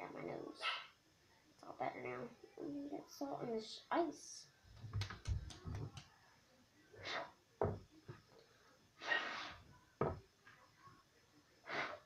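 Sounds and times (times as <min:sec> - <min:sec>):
child blowing and sniffing: 0:09.0 - 0:09.7.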